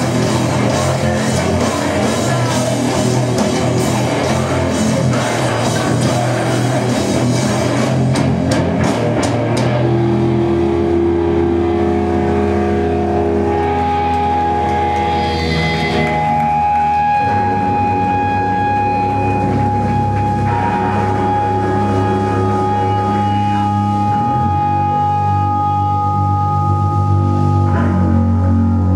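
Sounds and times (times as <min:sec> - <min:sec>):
distorted electric guitar: 0:00.0 - 0:28.9
drums: 0:00.0 - 0:28.9.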